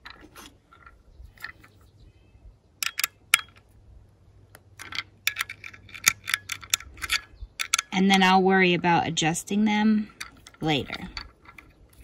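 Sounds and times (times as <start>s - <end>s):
metallic clicks of bracket tightening: 2.8s - 3.6s, 4.5s - 7.9s.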